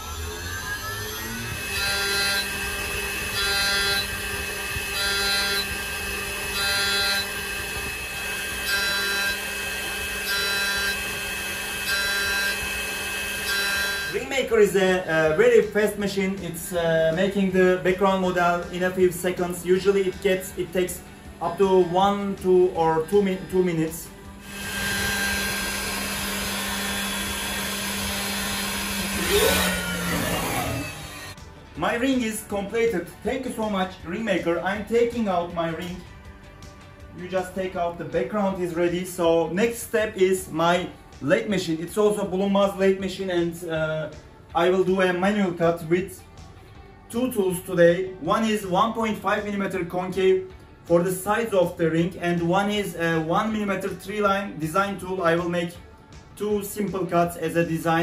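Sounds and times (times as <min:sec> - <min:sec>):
cutter cutting metal: 0:00.0 - 0:14.5, 0:21.4 - 0:31.4
milling machine spindle whine: 0:00.0 - 0:14.6, 0:19.8 - 0:31.4.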